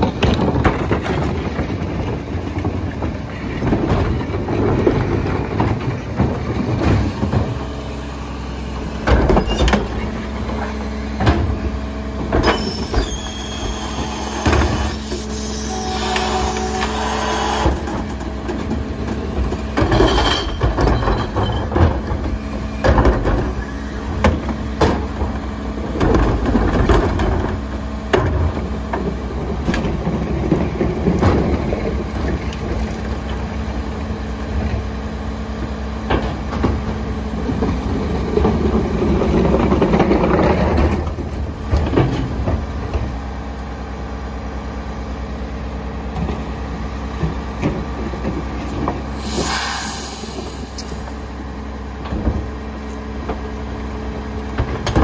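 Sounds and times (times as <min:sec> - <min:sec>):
carts knocking against hopper: 0:00.0 - 0:07.6
hydraulic packer grinding: 0:00.0 - 0:43.9, 0:45.0 - 0:55.0
garbage truck idling: 0:00.0 - 0:55.0.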